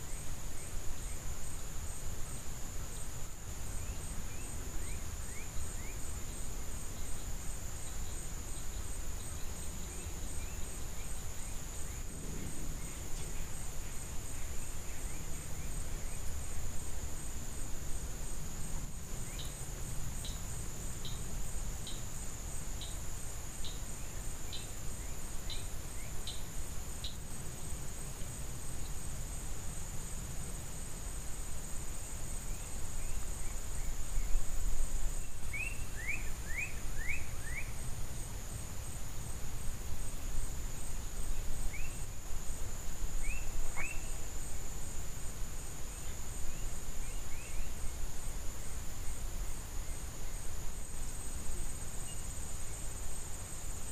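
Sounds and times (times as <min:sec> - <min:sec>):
insect drone: 0:00.0 - 0:53.9
bird chirps: 0:43.2 - 0:44.2.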